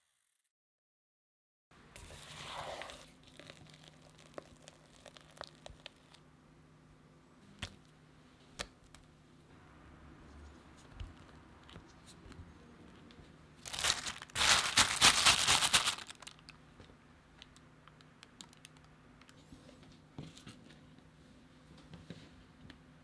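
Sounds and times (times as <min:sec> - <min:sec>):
plastic film crinkling: 0:13.6 - 0:16.6.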